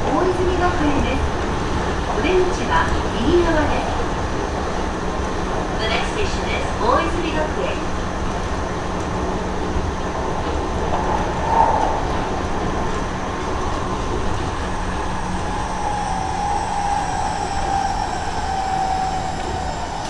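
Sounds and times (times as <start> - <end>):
train inverter whine: 0.0 - 20.0
train wheels rumbling on rail: 0.0 - 20.0.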